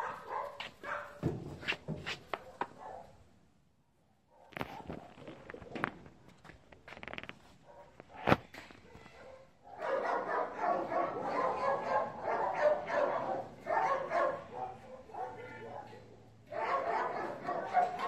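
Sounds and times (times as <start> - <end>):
dogs barking: 0.0 - 1.2, 2.4 - 3.2, 8.8 - 18.0.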